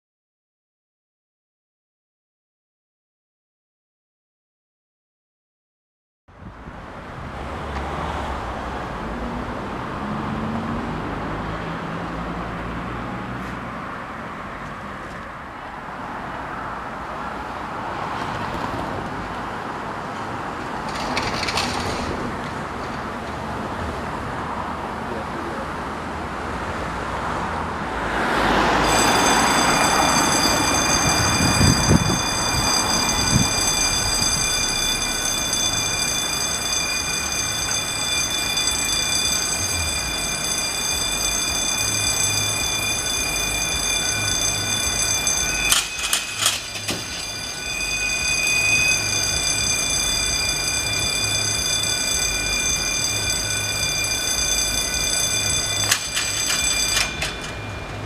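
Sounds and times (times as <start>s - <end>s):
level crossing alarm tone: 28.6s - 58.0s.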